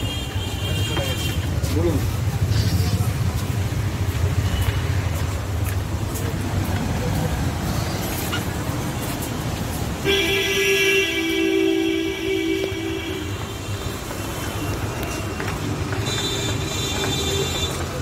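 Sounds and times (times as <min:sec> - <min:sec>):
street traffic rumble: 0:00.0 - 0:18.0
vehicle horn blaring: 0:10.0 - 0:13.7.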